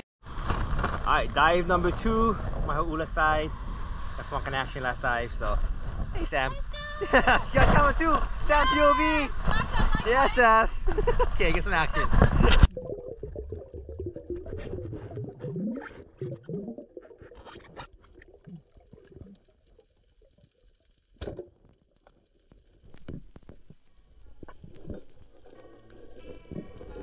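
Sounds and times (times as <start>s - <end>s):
muffled underwater rumble: 12.1s - 21.0s, 22.7s - 27.0s
clicks and crackles: 17.0s - 27.0s.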